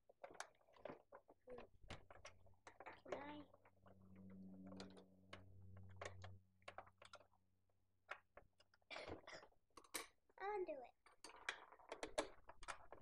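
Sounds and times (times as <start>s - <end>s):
faint steady hum: 1.6s - 6.8s.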